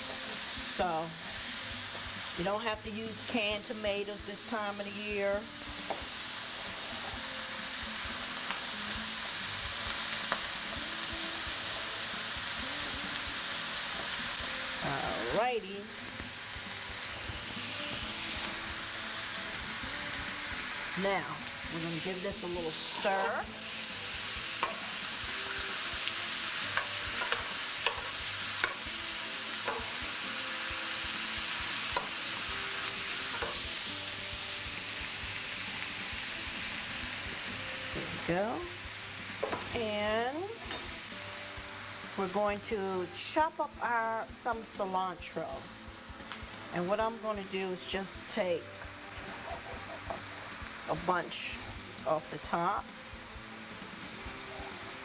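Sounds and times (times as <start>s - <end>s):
vegetables sizzling in a frying pan: 0.0s - 55.0s
metal spoon scraping a pan: 22.7s - 23.6s, 26.7s - 28.8s, 29.6s - 30.0s, 49.1s - 50.6s.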